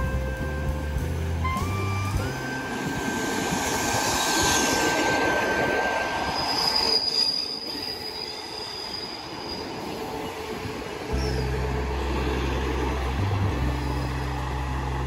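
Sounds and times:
train rumble: 0.0s - 15.0s
train wheels squealing: 1.5s - 10.5s, 11.1s - 11.6s.

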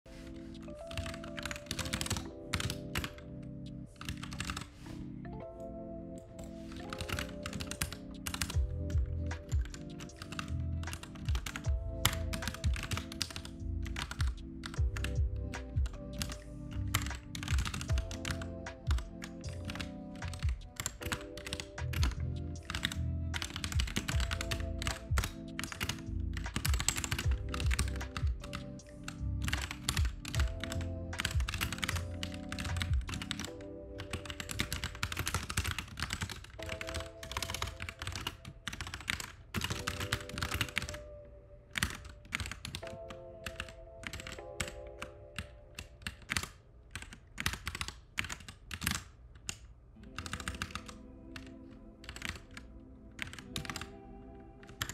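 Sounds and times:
lofi music with chords and bass: 0.1s - 35.0s
keyboard typing: 0.1s - 54.9s.

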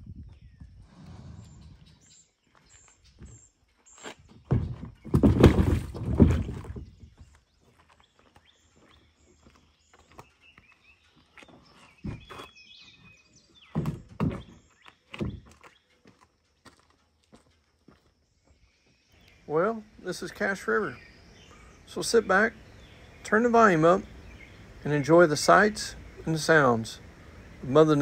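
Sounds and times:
kayak scraping on concrete: 0.8s - 2.8s
thuds: 4.3s - 7.3s, 13.7s - 15.6s
footsteps: 13.8s - 19.0s.

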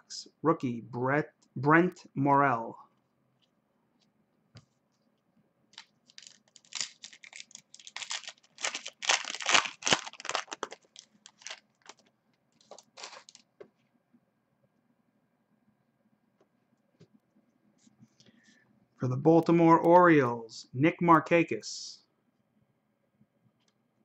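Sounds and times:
foil wrapper tearing and crinkling: 5.8s - 13.4s.

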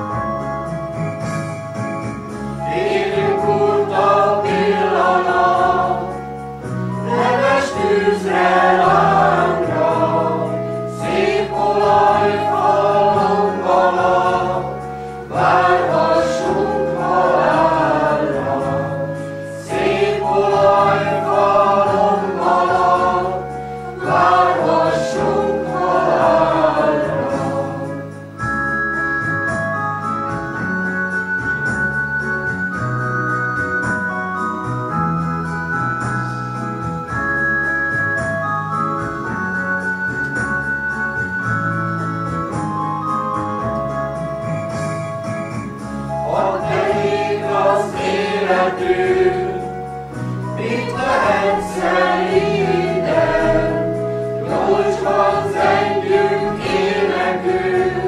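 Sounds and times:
electronic organ notes: 0.0s - 58.0s
mixed choir singing: 2.6s - 6.2s, 7.0s - 28.2s, 46.2s - 58.0s.

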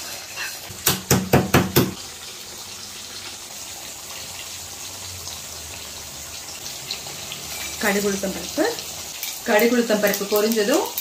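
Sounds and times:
wooden spatula knocking on pan: 0.8s - 2.0s.

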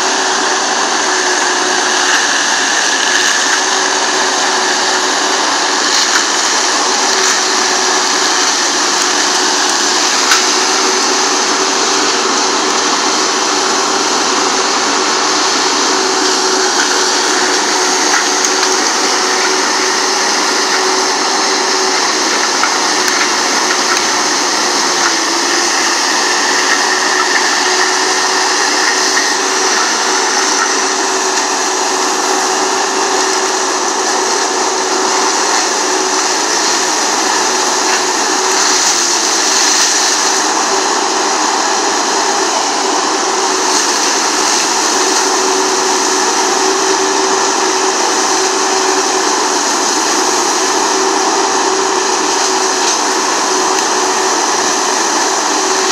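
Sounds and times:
forestry mulcher shredding branches: 0.0s - 55.9s.

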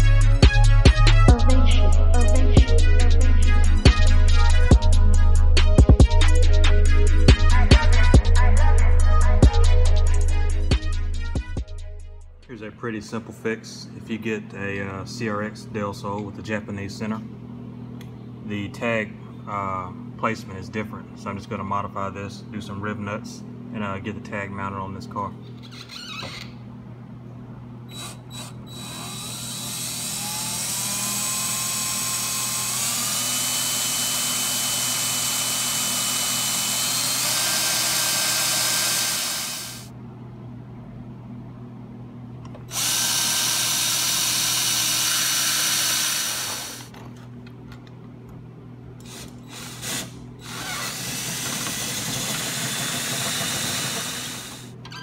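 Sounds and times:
cordless drill boring holes: 27.9s - 39.9s, 42.7s - 46.9s, 49.0s - 54.7s.

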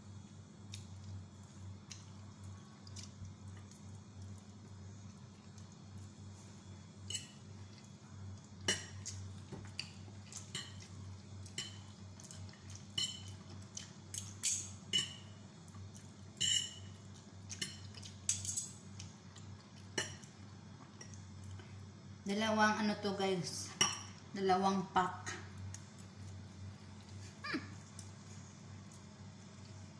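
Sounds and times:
low steady hum: 0.0s - 29.9s
forks clinking on a plate: 7.1s - 7.4s, 12.9s - 13.4s, 16.4s - 16.9s, 17.6s - 18.8s.

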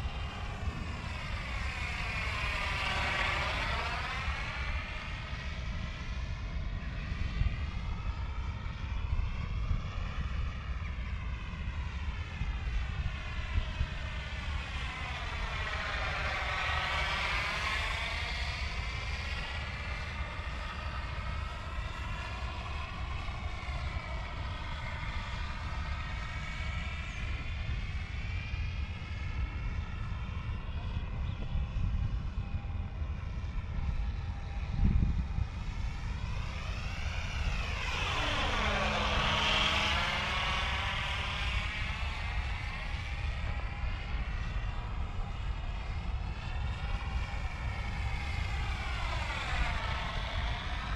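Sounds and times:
wind rumble on microphone: 0.0s - 50.9s
model airplane motor whining: 33.8s - 50.9s.

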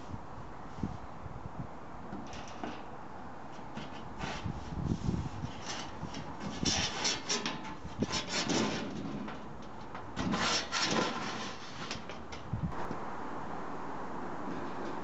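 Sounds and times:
steel panels scraping together: 2.2s - 2.9s, 3.5s - 12.5s.

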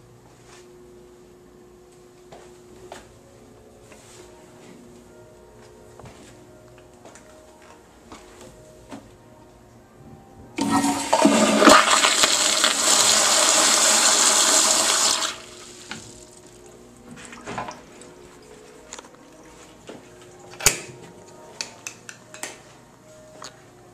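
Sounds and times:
toilet flushing water rush: 10.6s - 16.2s.

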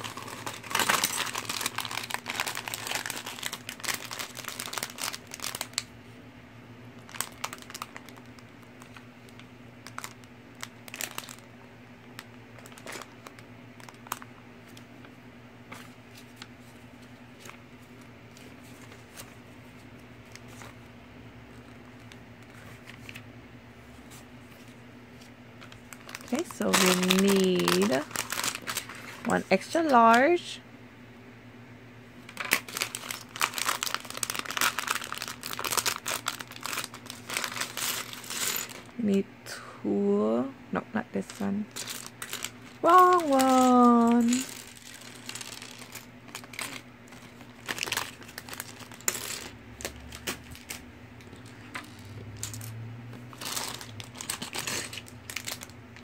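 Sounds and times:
plastic bags crinkling: 0.0s - 5.9s, 7.0s - 11.5s, 12.1s - 14.9s, 24.5s - 30.4s, 32.2s - 39.0s, 41.2s - 56.0s
steady low hum: 0.0s - 56.0s.

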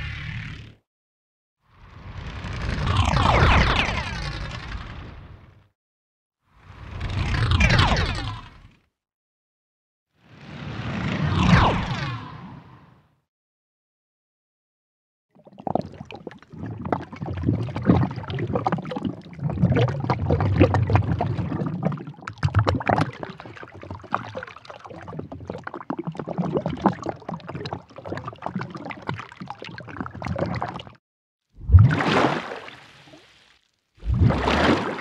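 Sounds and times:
water splashing and gurgling: 15.4s - 31.0s, 31.6s - 35.0s.

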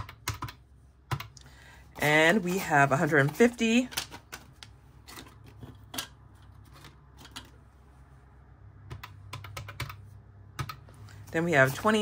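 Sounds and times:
calculator keys clicking: 0.0s - 1.5s, 8.8s - 11.0s
paper bills being handled: 0.6s - 7.8s.

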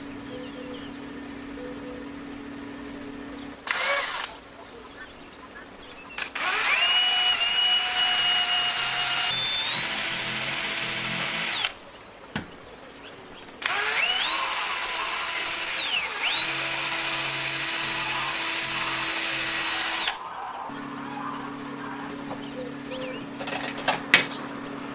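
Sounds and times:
electric drill whining: 2.3s - 4.4s, 6.2s - 11.8s, 13.6s - 20.2s
drill click: 3.3s - 4.5s, 6.2s - 11.8s, 13.6s - 20.2s.

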